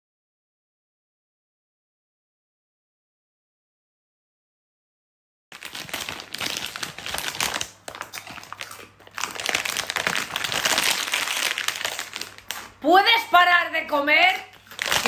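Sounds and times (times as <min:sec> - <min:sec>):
plastic snack packet crackling: 0:05.5 - 0:12.8, 0:14.3 - 0:15.0.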